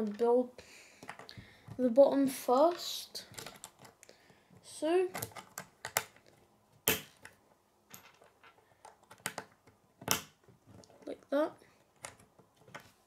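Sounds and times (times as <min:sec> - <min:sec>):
plastic pieces clicking together: 0:05.1 - 0:06.3, 0:06.9 - 0:11.1.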